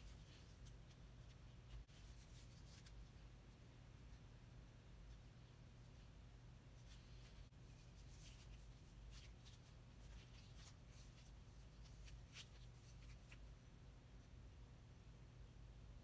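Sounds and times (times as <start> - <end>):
low steady hum: 0.0 - 16.0
cloth tape measure rustles: 6.8 - 13.5.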